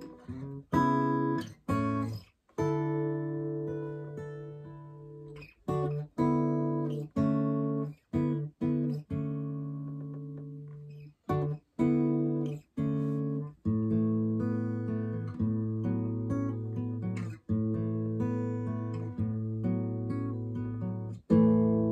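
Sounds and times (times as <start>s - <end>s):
acoustic guitar strummed chords: 0.0s - 21.9s.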